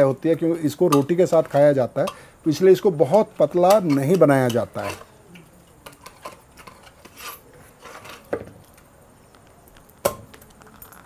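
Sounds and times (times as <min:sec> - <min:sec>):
metal ladle scraping a pot: 0:03.7 - 0:05.2, 0:05.8 - 0:08.3.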